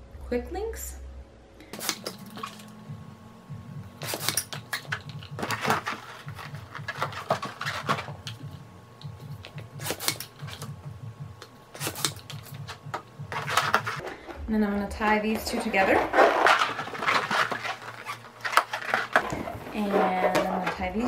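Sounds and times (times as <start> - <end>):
hand balloon pump strokes: 15.4 - 21.0
rubber squeaks and rubbing: 15.8 - 20.6.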